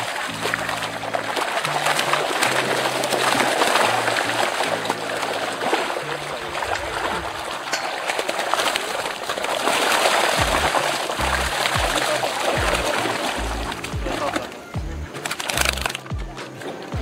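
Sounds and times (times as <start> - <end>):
background music bass notes: 0.0 - 7.5, 10.4 - 17.0
water splashing and churning: 0.0 - 17.0.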